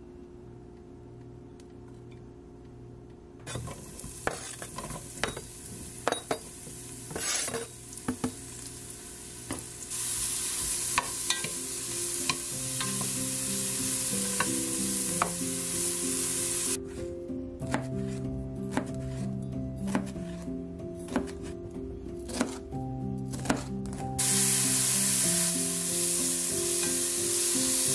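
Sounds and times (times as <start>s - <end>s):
mushrooms sizzling in oil: 3.6s - 16.8s, 24.2s - 27.9s
knife chopping on cutting board: 17.6s - 20.4s, 21.0s - 21.6s, 22.2s - 22.6s, 23.3s - 24.0s.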